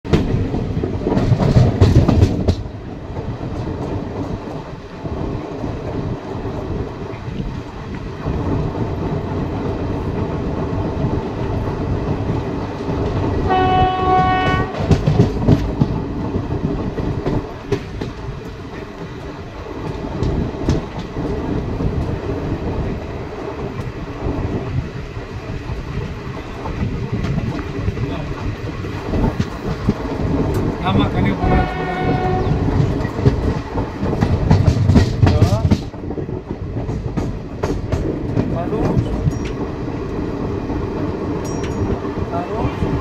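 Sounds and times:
train wheels rumbling on rail: 0.0s - 43.0s
train horn: 13.4s - 15.0s, 31.4s - 32.7s
clicks over rail joints: 14.1s - 22.1s, 26.6s - 39.6s.

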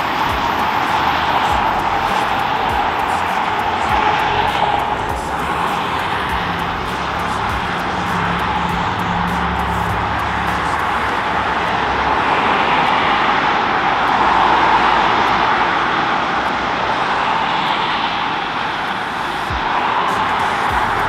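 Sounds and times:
tyres hissing on wet pavement: 0.0s - 15.9s
highway traffic rushing: 0.0s - 21.0s.

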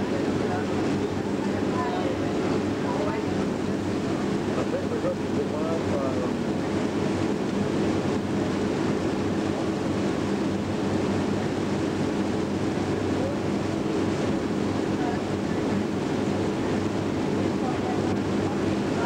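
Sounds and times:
boat engine humming: 0.0s - 19.0s
wind: 0.0s - 19.0s.

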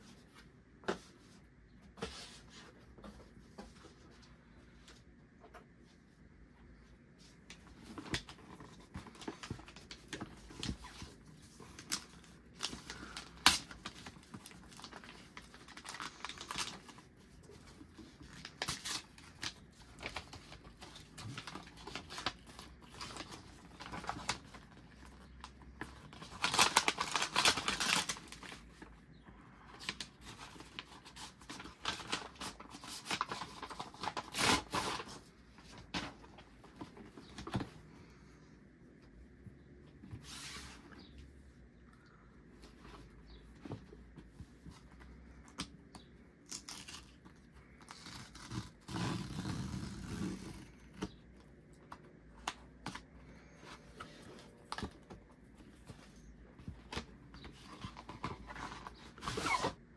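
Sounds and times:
paper rustling and crinkling: 7.2s - 28.9s, 29.5s - 37.9s, 51.9s - 59.8s.

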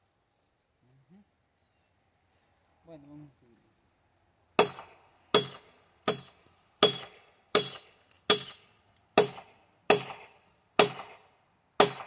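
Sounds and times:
metal blade chopping wood: 4.6s - 12.0s.

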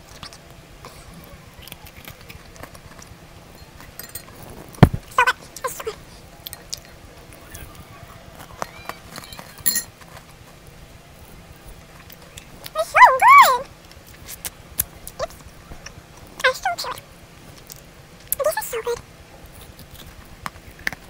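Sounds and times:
small dog yipping: 12.8s - 13.7s.

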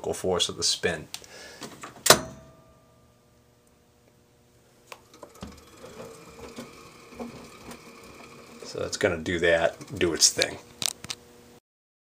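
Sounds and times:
washing machine spinning: 5.0s - 10.8s.

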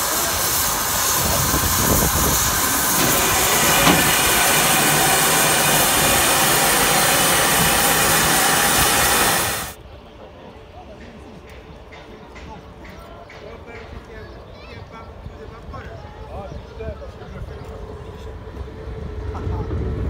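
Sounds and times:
steam locomotive hissing: 0.0s - 9.8s.

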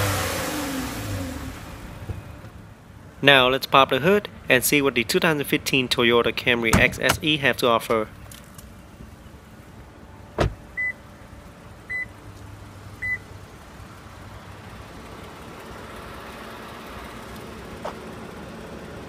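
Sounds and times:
car engine idling: 4.0s - 19.0s
car warning chime beeping: 10.8s - 11.0s, 11.9s - 12.2s, 13.0s - 13.3s.

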